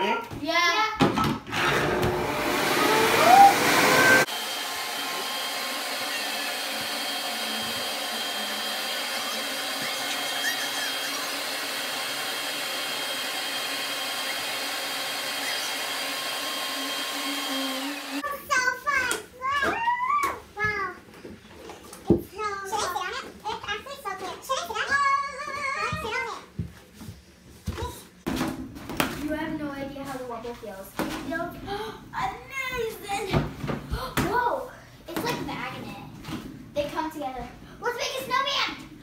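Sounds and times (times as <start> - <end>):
electric leaf blower running: 1.5 - 18.2.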